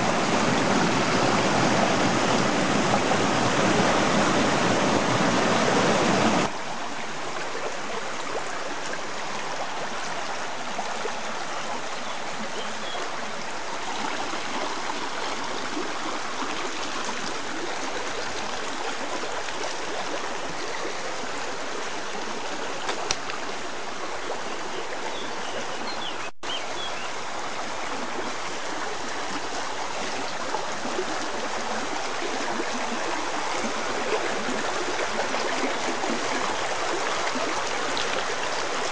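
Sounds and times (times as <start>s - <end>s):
stream flowing over rocks: 0.0s - 38.9s.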